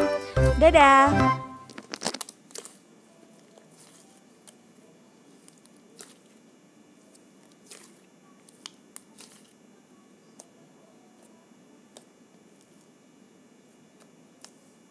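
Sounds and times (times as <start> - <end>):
sharp clicks and pops: 1.6 - 2.8
slime squishing: 1.7 - 12.9, 13.9 - 14.9.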